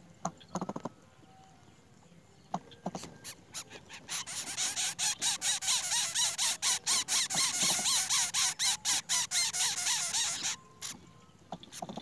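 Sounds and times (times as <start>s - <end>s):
nestlings begging calls: 2.9s - 11.0s.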